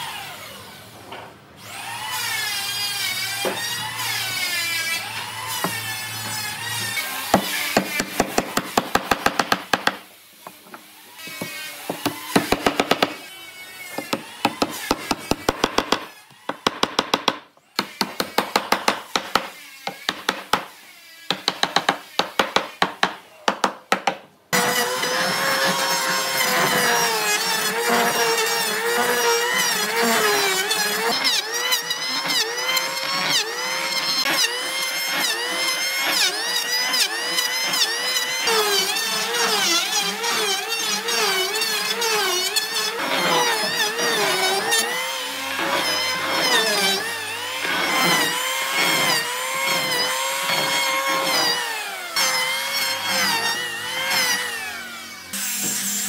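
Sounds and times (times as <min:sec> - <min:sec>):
electric hand planer running: 0:24.6 - 0:56.0.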